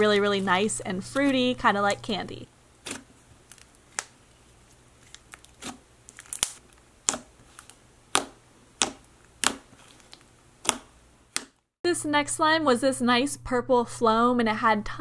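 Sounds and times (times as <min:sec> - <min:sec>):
slime popping and squelching: 0:05.0 - 0:11.5.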